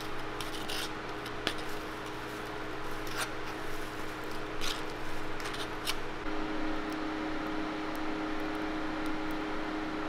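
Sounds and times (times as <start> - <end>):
metal spatula scraping: 0.0 - 6.0
hum of shop equipment: 0.0 - 10.0.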